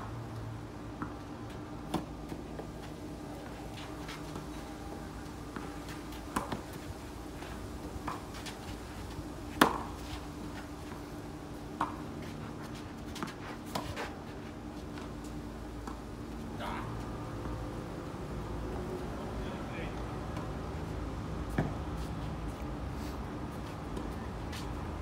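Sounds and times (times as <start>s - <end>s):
tennis ball hitting rackets: 1.8s - 4.7s, 5.5s - 11.0s, 11.7s - 14.1s.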